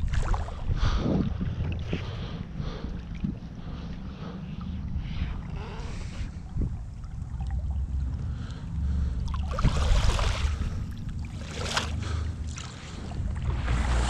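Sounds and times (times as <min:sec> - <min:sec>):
river water splashing: 0:00.0 - 0:00.6, 0:05.4 - 0:14.0
wind buffeting microphone: 0:00.0 - 0:14.0.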